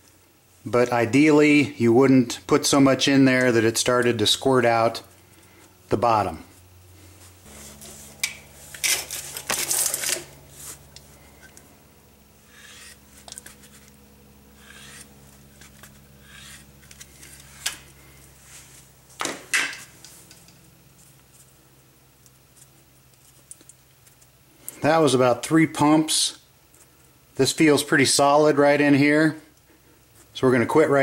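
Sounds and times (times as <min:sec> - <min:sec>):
grease gun pumping strokes: 0:14.6 - 0:17.6.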